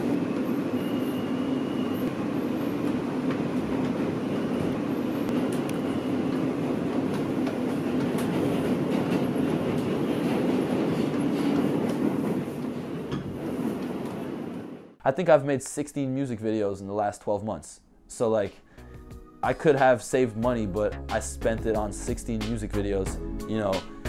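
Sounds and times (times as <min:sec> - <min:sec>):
subway wheels rumbling on track: 0:00.0 - 0:15.0.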